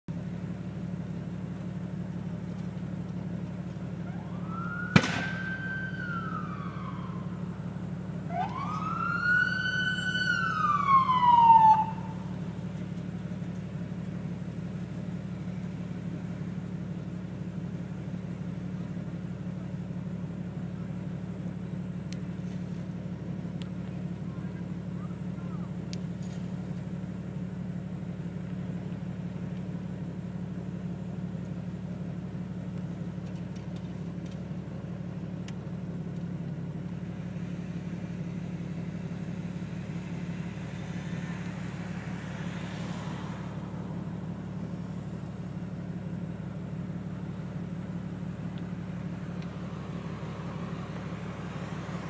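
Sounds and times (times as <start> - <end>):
emergency vehicle siren: 3.7 - 15.0, 38.7 - 52.0
sharp bang: 4.9 - 5.5.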